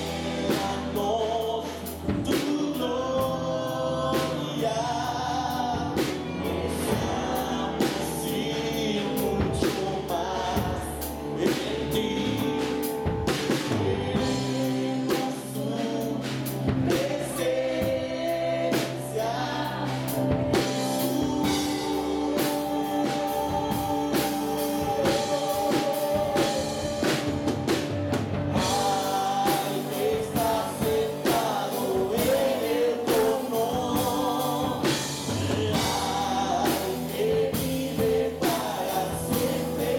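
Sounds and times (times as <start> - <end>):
bass guitar: 0.0 - 39.9
drum kit: 0.0 - 39.9
electric guitar: 0.0 - 39.9
keyboard: 0.0 - 39.9
man singing: 0.0 - 39.9
woman singing: 13.8 - 27.9.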